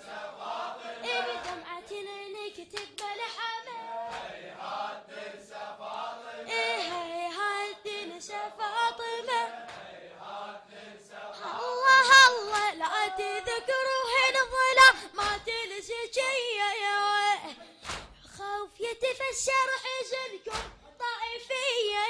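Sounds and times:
person chanting a mourning elegy: 0:00.8 - 0:01.7, 0:11.4 - 0:14.0.

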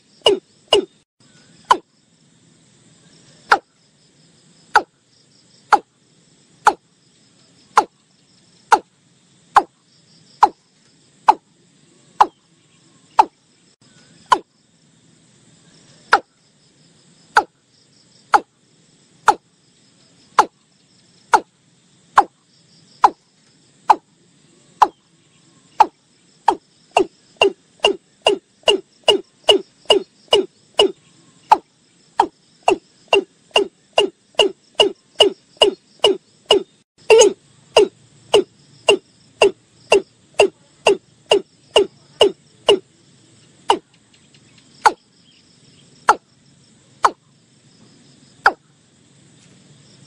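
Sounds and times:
faint insect-like buzz: 0:00.0 - 0:50.0
bird calling hollow notes: 0:00.2 - 0:01.0, 0:13.2 - 0:13.4, 0:14.2 - 0:14.5, 0:23.9 - 0:24.1, 0:25.8 - 0:42.8.

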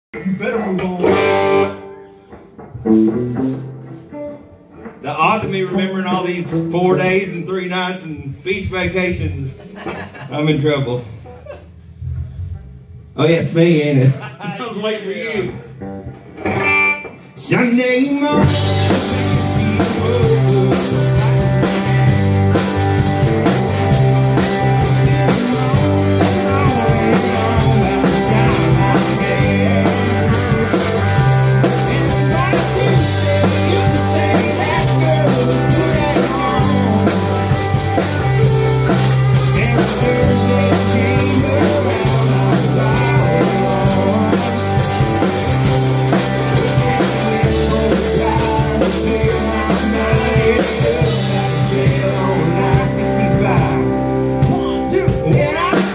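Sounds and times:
rock band playing: 0:00.2 - 0:55.9
man singing into a microphone: 0:17.4 - 0:21.9, 0:25.6 - 0:30.7, 0:31.6 - 0:37.6, 0:39.4 - 0:44.8, 0:46.6 - 0:55.9
drum kit with cymbals: 0:18.4 - 0:55.9.

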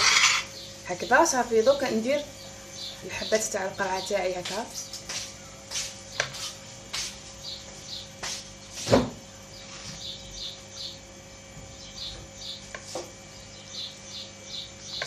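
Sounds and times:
bird chirping: 0:02.2 - 0:04.2, 0:09.4 - 0:11.0, 0:11.7 - 0:12.6, 0:13.3 - 0:15.0.

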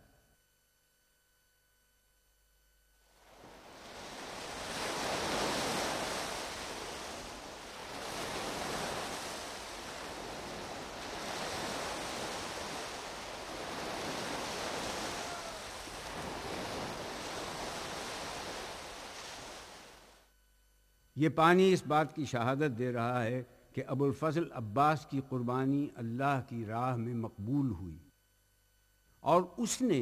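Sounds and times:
rushing splashing water: 0:03.8 - 0:20.0.

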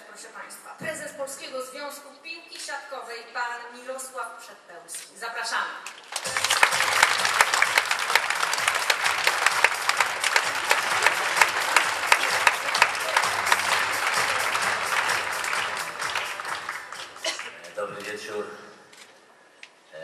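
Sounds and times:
audience applauding: 0:06.0 - 0:18.2.

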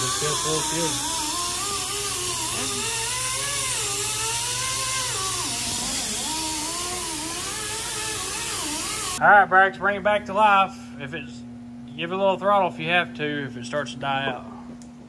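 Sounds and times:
power tool motor running: 0:00.0 - 0:09.2.

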